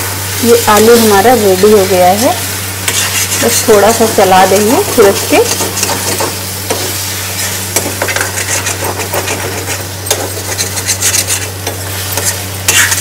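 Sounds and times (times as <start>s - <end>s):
light frying sizzle: 0.0s - 13.0s
metal spatula scraping pan: 2.8s - 4.1s, 4.8s - 13.0s.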